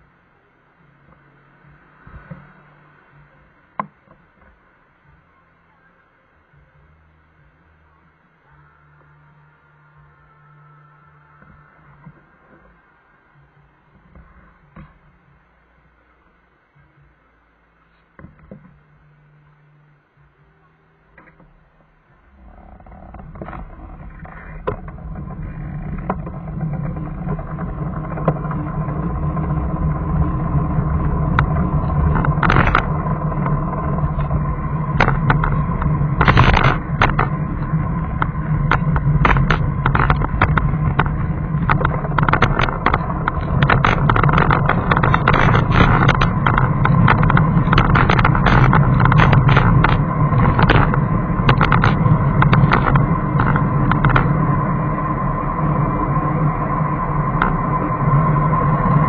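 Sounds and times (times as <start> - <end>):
steady high hum: 0.0 - 59.0
vehicle engine and road noise: 0.0 - 59.0
short crackles and knocks: 21.1 - 59.0.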